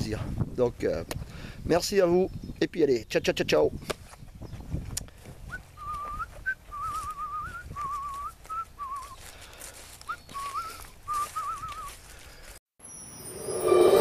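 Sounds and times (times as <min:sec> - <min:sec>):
man whistling a tune: 0:05.5 - 0:09.2, 0:10.0 - 0:12.0.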